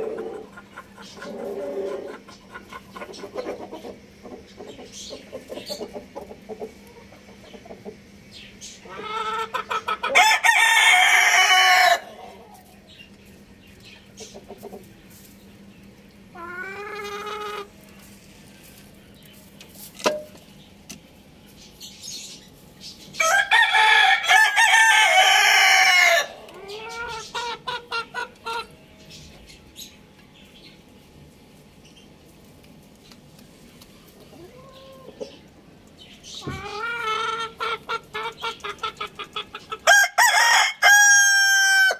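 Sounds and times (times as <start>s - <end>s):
chicken clucking: 0.0s - 19.9s, 21.6s - 30.8s, 31.9s - 41.9s
rooster crowing: 10.1s - 12.4s, 23.2s - 26.4s, 39.9s - 41.9s.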